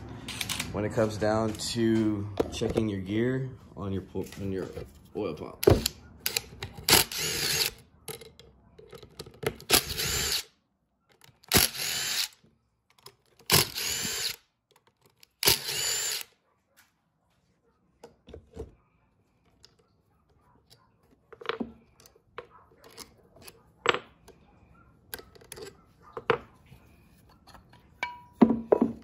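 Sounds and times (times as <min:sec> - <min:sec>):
impact driver bursts: 0:05.7 - 0:07.8, 0:09.7 - 0:10.5, 0:11.5 - 0:12.4, 0:13.5 - 0:14.4, 0:15.4 - 0:16.3.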